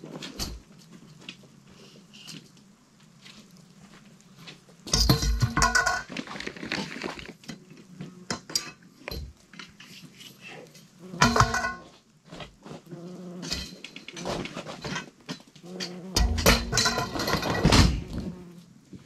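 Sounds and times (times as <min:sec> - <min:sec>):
metal poles clinking: 0:16.2 - 0:17.9.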